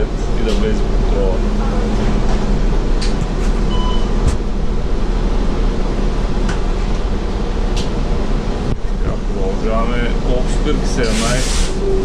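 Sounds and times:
bus drivetrain rumble: 0.0s - 12.0s
brief beep: 3.7s - 4.2s.

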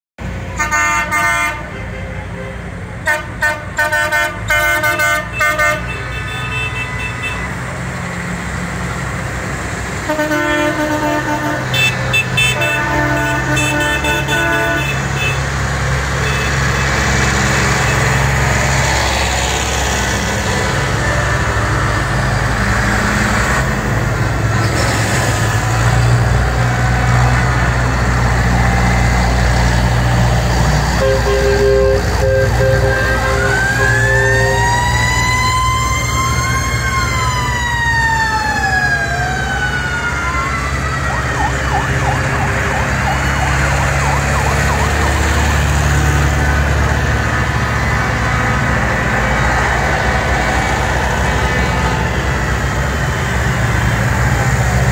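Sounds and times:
tractor engines rumbling: 0.2s - 54.9s
horns tooting: 0.5s - 7.7s, 10.0s - 18.3s, 30.9s - 34.7s.

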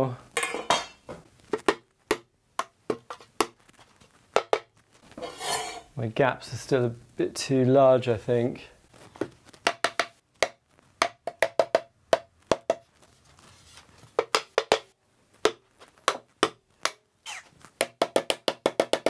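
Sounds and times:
mallet tapping wooden frame: 9.6s - 12.8s.

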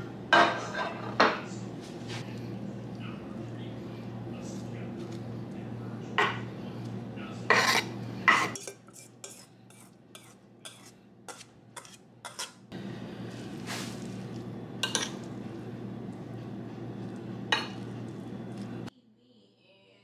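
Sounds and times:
knife scraping on cutting board: 7.5s - 12.6s.

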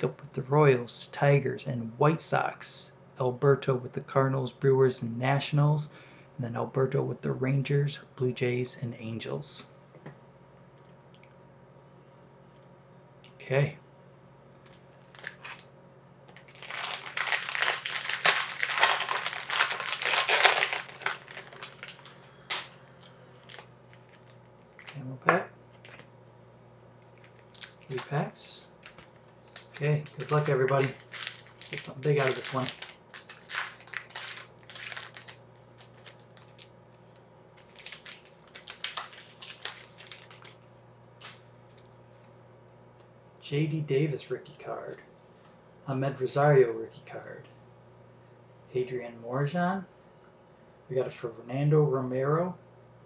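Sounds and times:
plastic wrapping crinkling: 14.7s - 15.6s, 16.3s - 25.0s, 25.7s - 26.1s, 27.0s - 42.3s.

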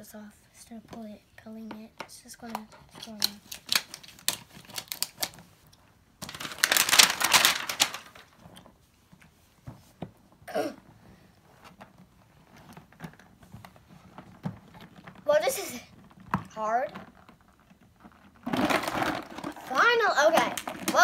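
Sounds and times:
small clicks and rustles: 1.6s - 21.0s
plastic crinkling and tearing: 3.0s - 5.4s, 6.2s - 8.6s, 17.1s - 21.0s.

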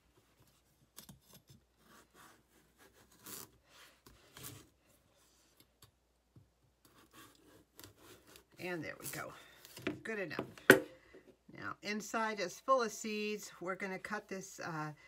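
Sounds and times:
knife cutting squash: 6.9s - 8.6s.

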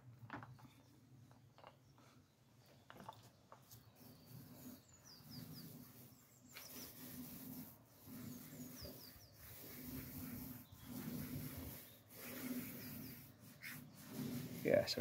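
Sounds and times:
faint bird chirps: 1.8s - 7.4s
paint roller rolling: 2.8s - 15.0s.

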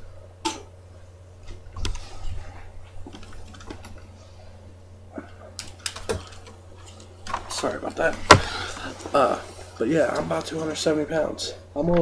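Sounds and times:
steady low hum: 0.0s - 12.0s
dull knocks: 8.2s - 8.7s.

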